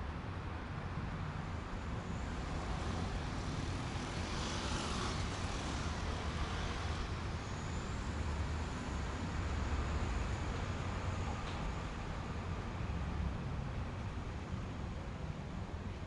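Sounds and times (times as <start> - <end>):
passing vehicle hiss: 2.2 - 11.7.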